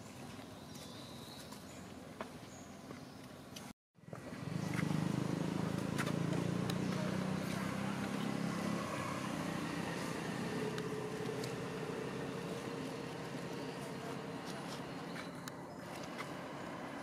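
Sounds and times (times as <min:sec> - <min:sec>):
vehicle engine humming: 0:04.0 - 0:17.0.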